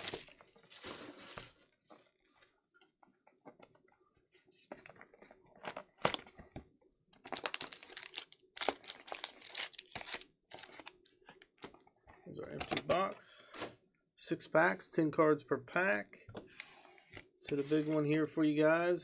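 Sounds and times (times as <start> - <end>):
foil packs crinkling and rustling: 0.0 - 1.5, 7.2 - 10.9.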